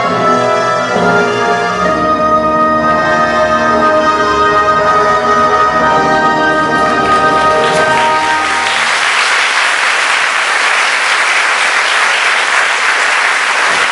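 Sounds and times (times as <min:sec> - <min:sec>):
music held chord: 0:01.5 - 0:09.0
audience applause: 0:06.6 - 0:13.9.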